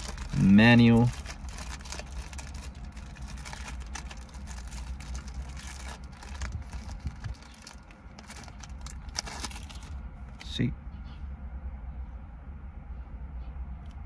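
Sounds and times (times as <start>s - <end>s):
plastic and paper rustling: 0.0s - 10.0s
car cabin rumble: 0.0s - 10.6s.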